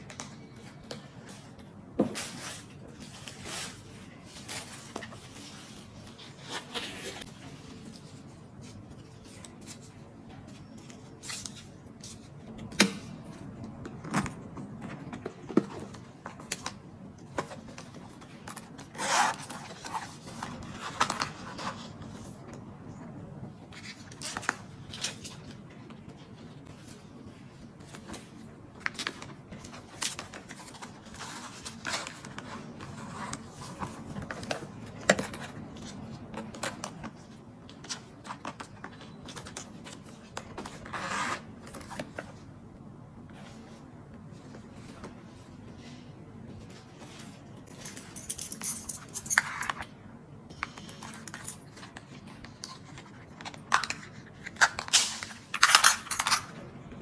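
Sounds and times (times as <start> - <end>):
scraping in handbag: 18.9 - 21.9.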